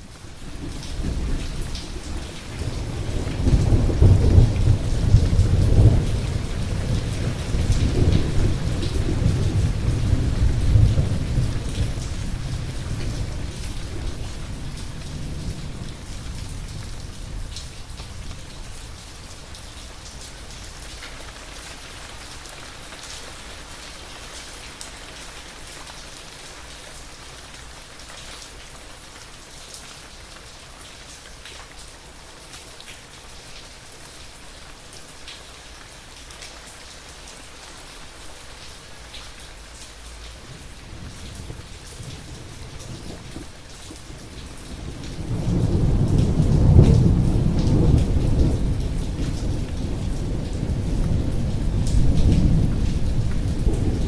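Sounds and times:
steady rain falling: 0.0s - 54.0s
thunder rumbling: 0.6s - 18.0s, 40.5s - 54.0s.

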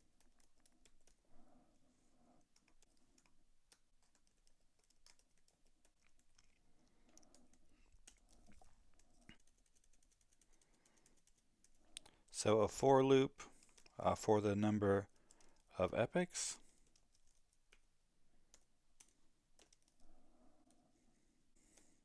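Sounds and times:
typing on computer keyboard: 0.0s - 1.2s, 2.4s - 11.8s, 13.5s - 14.0s, 15.0s - 15.8s, 16.6s - 20.8s.

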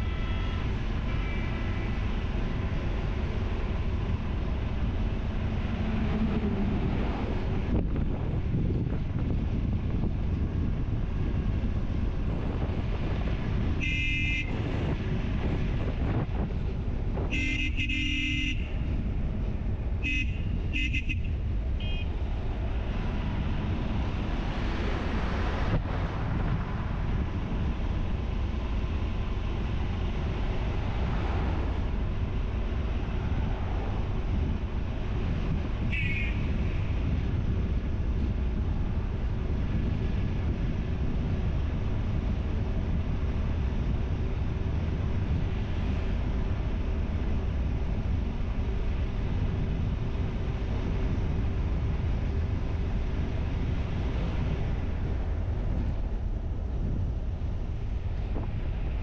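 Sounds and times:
vehicle horn honking: 0.0s - 1.9s, 13.8s - 14.6s, 17.2s - 18.8s, 20.0s - 22.1s, 35.9s - 36.6s
wind: 0.0s - 59.0s.

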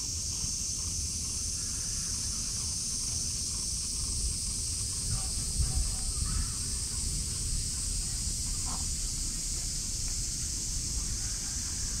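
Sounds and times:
insects chorus: 0.0s - 12.0s
wind on microphone: 3.9s - 9.1s.

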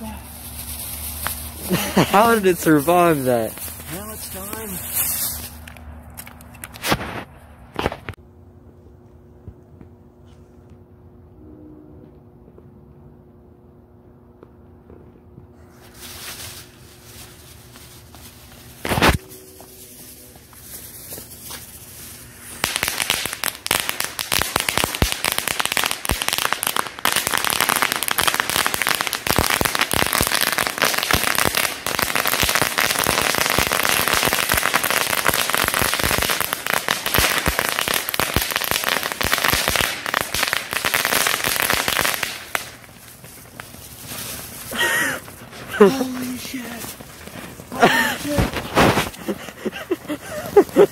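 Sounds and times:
rapid crackle of firework pops: 0.4s - 8.2s, 15.8s - 19.3s, 20.4s - 50.9s
firework bang: 47.9s - 49.2s.

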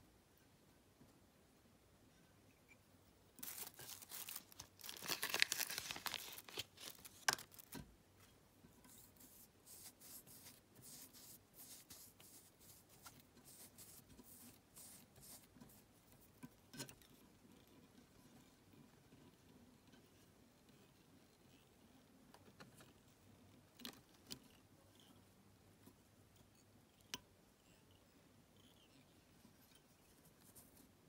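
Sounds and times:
crinkly tearing and rustling: 3.4s - 7.8s.

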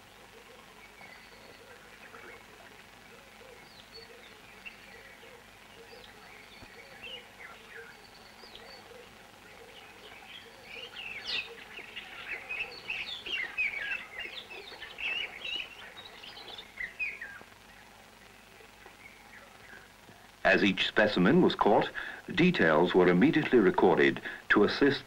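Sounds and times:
birds chirping and whistling: 3.4s - 17.8s.

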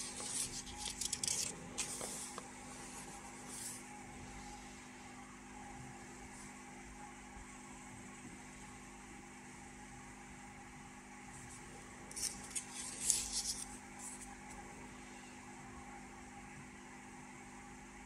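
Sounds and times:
old paper rustling and crackling: 0.0s - 2.5s, 12.1s - 14.6s
low room hum: 0.0s - 18.0s.

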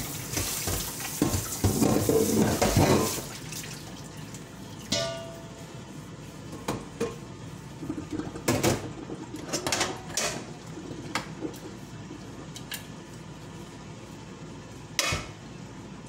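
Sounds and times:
metal pots clanking: 0.7s - 3.3s, 4.9s - 5.4s.

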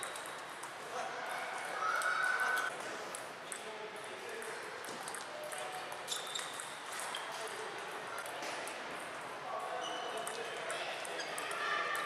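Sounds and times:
table tennis balls clicking: 0.0s - 0.8s.

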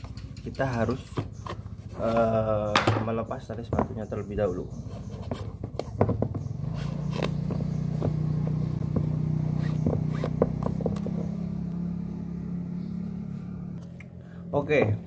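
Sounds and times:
low engine hum: 4.8s - 15.0s
lace scraping through eyelets: 6.6s - 8.8s.

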